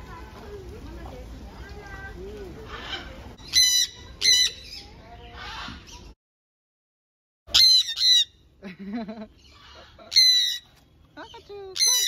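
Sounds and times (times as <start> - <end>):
parrots squawking shrilly: 2.7 - 6.0, 7.5 - 8.4, 9.4 - 10.7, 11.8 - 12.0.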